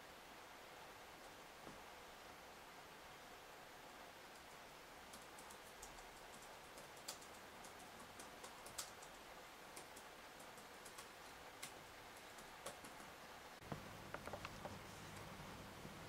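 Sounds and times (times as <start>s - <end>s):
faint clicks: 4.3s - 15.3s.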